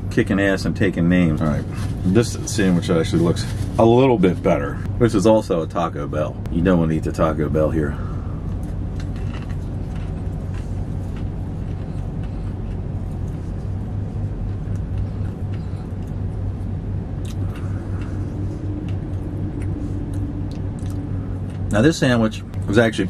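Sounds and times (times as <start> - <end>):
vehicle engine idling: 0.0 - 23.0
crunchy food being chewed: 8.5 - 13.8, 17.2 - 21.8.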